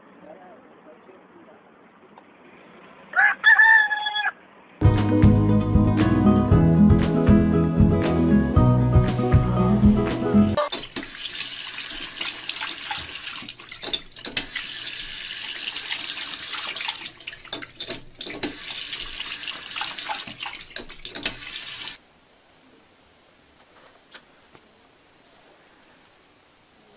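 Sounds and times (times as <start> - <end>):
background music: 4.8 - 10.6
water running from sink faucet: 10.7 - 22.0.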